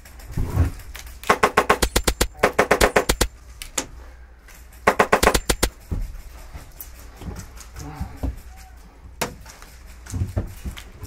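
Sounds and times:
airsoft rifle bursts: 1.2s - 3.4s, 4.8s - 5.8s.

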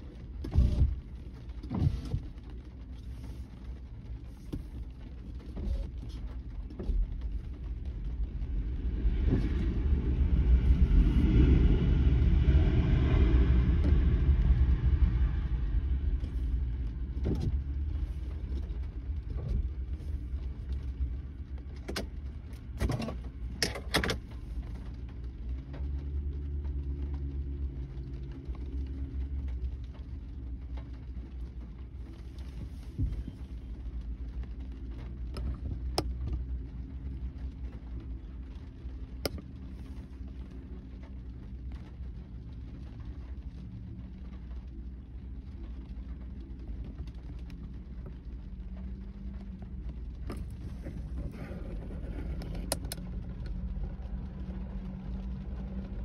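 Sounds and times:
raindrops tapping on windshield: 0.0s - 56.0s
steady low rumble: 0.0s - 56.0s
car passing: 8.6s - 17.1s.

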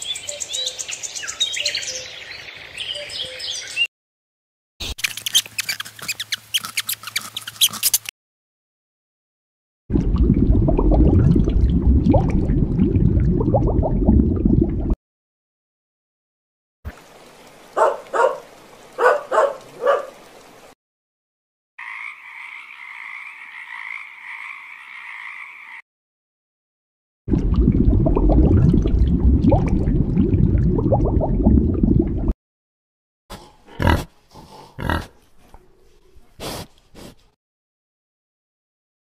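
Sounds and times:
small dog barking: 17.8s - 20.2s
frog trilling: 21.8s - 25.8s.

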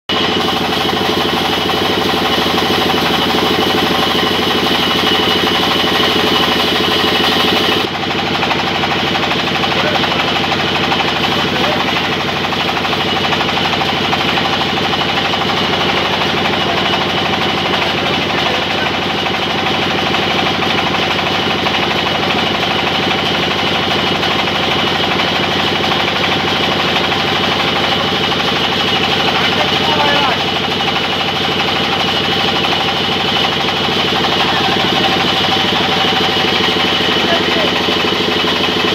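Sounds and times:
band saw machinery running: 0.1s - 38.9s.

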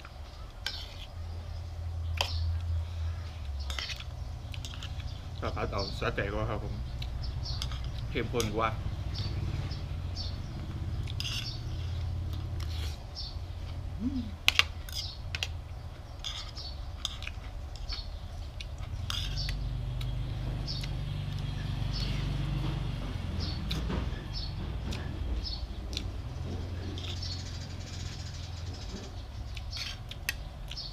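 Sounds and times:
steady low hum: 0.0s - 30.9s
cutlery scraping a plate: 11.1s - 11.9s, 19.0s - 19.5s.

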